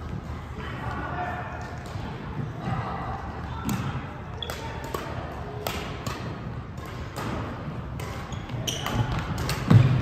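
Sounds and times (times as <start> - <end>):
rackets hitting shuttlecock: 3.6 - 10.0.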